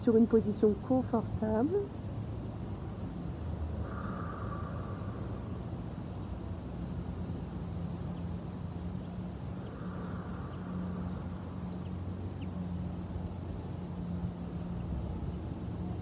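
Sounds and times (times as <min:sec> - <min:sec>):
steady low drone: 0:00.0 - 0:16.0
faint bird chirps: 0:03.8 - 0:06.4.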